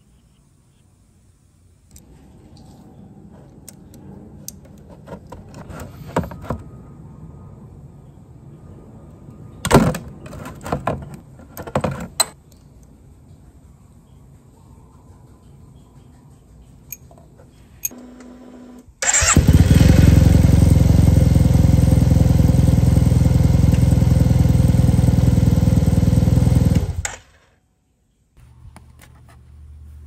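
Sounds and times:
socket wrench metallic clinks: 16.9 - 17.1.

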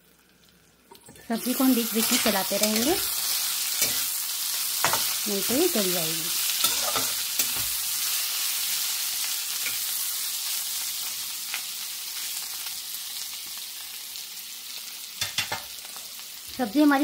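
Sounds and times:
vegetables sizzling in hot oil: 0.0 - 17.0
metal spatula scraping pan: 6.6 - 7.8.

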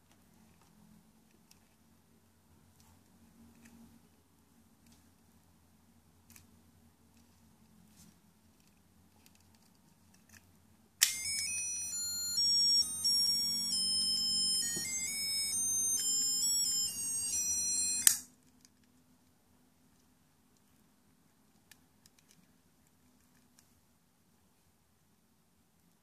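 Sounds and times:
plastic toy handling: 8.5 - 10.5
toy click: 11.0 - 18.3
toy electronic beeping tune: 11.0 - 18.3.

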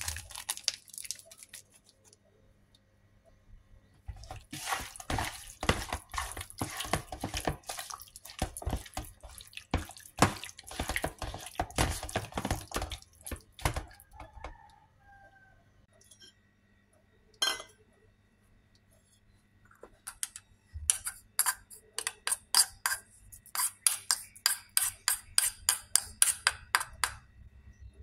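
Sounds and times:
wet squelching of chicken in sauce: 0.0 - 2.2, 4.1 - 14.0.

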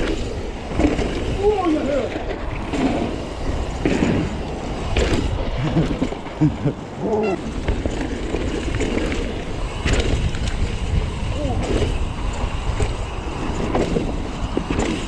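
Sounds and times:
low wind rumble on microphone: 0.0 - 15.0
indistinct voices calling out: 7.0 - 7.6.

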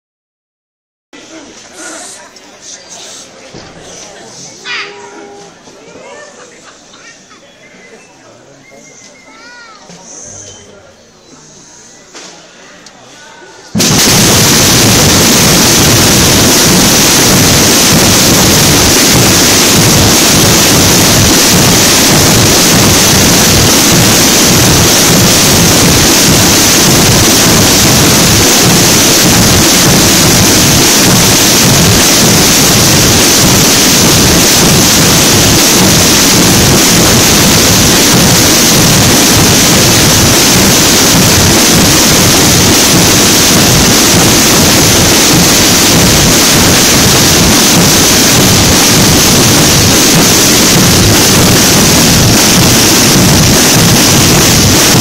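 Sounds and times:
massed snare and bass drums: 13.8 - 55.0.

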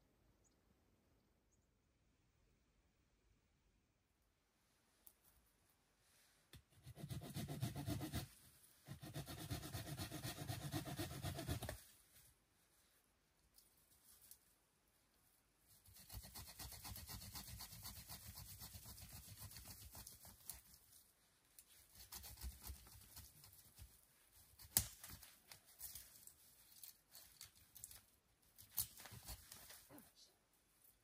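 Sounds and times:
rustling of dry twigs: 23.3 - 30.0.

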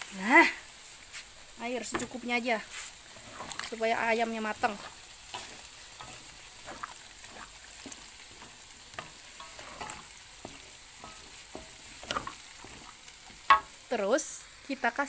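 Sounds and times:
food sizzling in a wok: 0.0 - 15.0
spatula scraping and knocking pan: 1.8 - 13.9.

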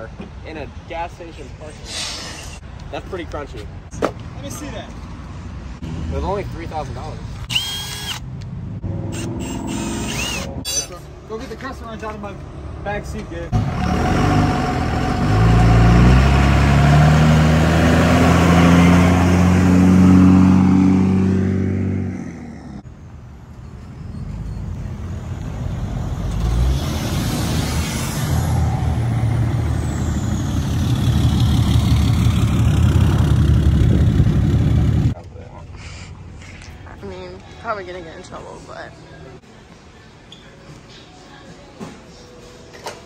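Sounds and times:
truck engine revving: 13.5 - 22.8, 25.0 - 35.2.

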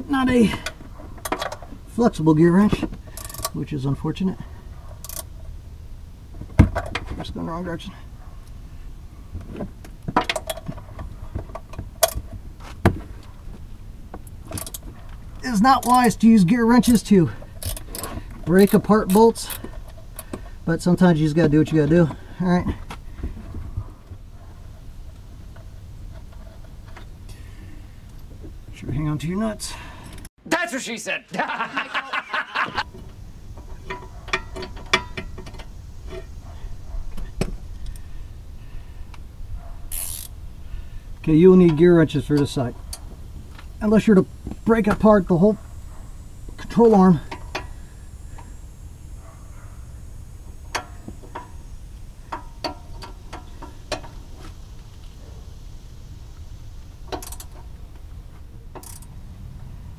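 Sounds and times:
wrench clicking and clinking: 3.2 - 3.5, 39.9 - 40.3, 57.1 - 57.6, 58.8 - 59.1
ratcheting wrench clicks: 3.2 - 3.6, 5.0 - 5.3, 14.5 - 14.8, 17.6 - 19.6, 39.9 - 40.4, 57.1 - 57.6, 58.7 - 59.1
man laughing: 31.2 - 32.9.

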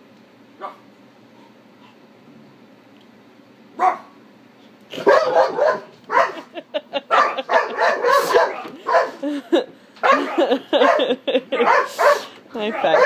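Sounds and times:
dog barking: 0.6 - 0.8, 3.8 - 4.2, 5.0 - 6.5, 7.1 - 9.2, 10.0 - 13.0.

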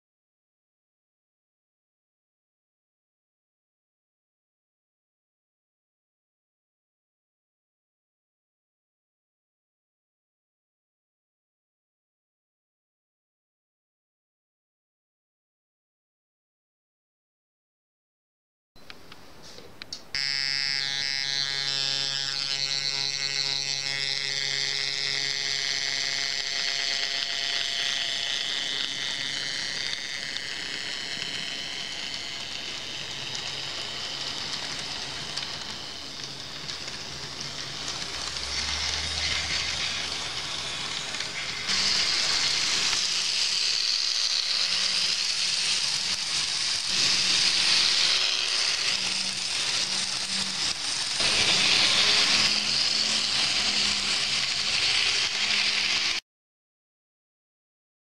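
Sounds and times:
model train motor whine: 20.1 - 56.2
wheels rattling on rails: 28.3 - 43.6.

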